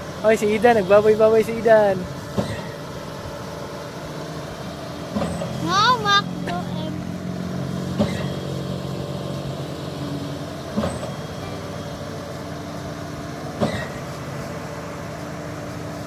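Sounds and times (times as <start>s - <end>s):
diesel engine running: 0.0s - 16.0s
sharp clunk with hiss: 2.3s - 2.8s, 8.0s - 8.4s, 10.8s - 11.2s, 13.6s - 14.2s.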